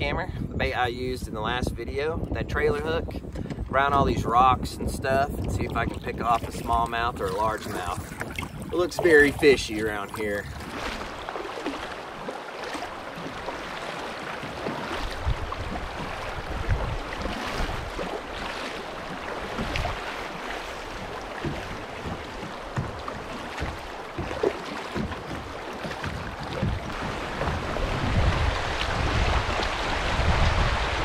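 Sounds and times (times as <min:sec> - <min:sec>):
wind buffeting microphone: 0:00.0 - 0:31.0
paddle splashing in water: 0:05.3 - 0:31.0
creek current rushing: 0:06.4 - 0:31.0.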